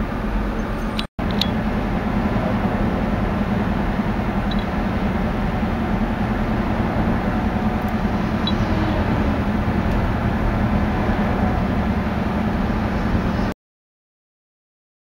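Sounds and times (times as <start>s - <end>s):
road and engine noise inside car: 0.0s - 13.6s.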